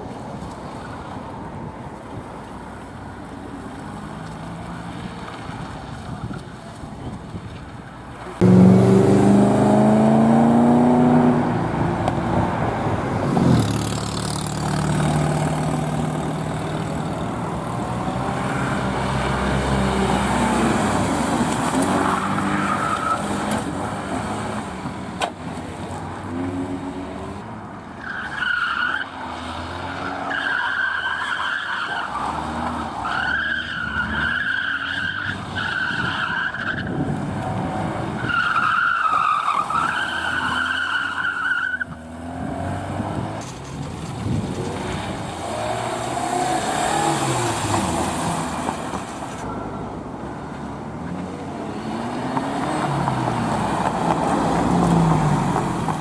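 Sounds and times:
car engine revving: 0:08.4 - 0:12.4
tyres squealing on asphalt: 0:20.0 - 0:24.7, 0:27.9 - 0:56.0.

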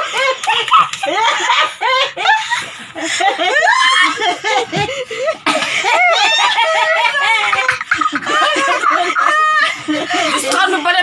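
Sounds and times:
women laughing: 0:00.0 - 0:11.0.

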